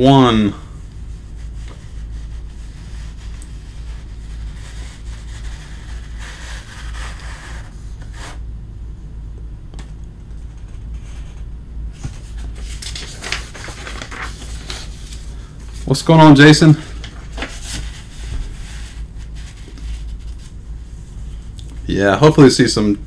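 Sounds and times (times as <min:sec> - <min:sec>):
steady low hum: 0:00.0 - 0:23.0
handling rustles and scrapes: 0:11.9 - 0:21.5.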